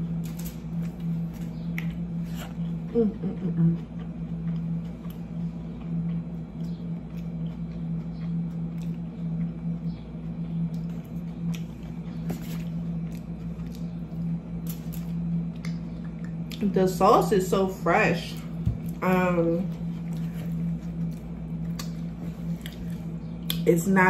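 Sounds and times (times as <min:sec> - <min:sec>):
low hum: 0:00.0 - 0:24.0.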